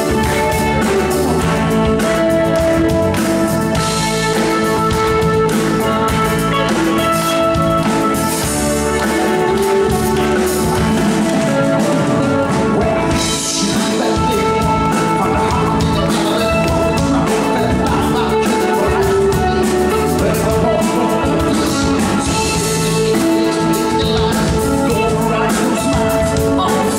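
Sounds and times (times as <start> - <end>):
drum kit: 0.0 - 26.9
electric guitar: 0.0 - 26.9
man singing: 0.0 - 26.9
sustained keyboard chords: 0.0 - 26.9.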